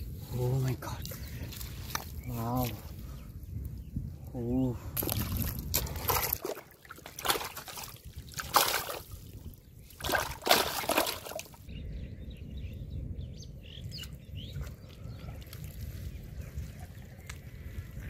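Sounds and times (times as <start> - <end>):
birds chirping faintly: 0.3 - 5.0, 9.3 - 18.0
fish splashing in water: 5.8 - 9.2, 10.0 - 11.6.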